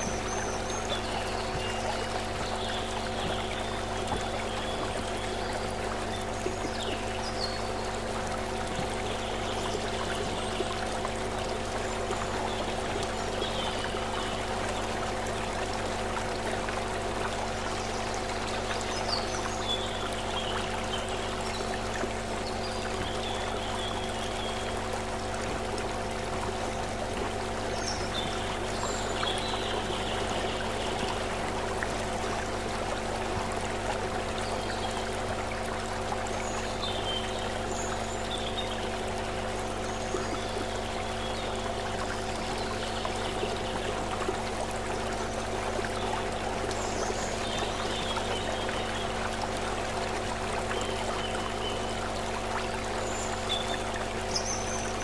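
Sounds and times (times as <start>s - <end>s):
low multi-tone hum: 0.0s - 55.0s
stream running over stones: 0.0s - 55.0s.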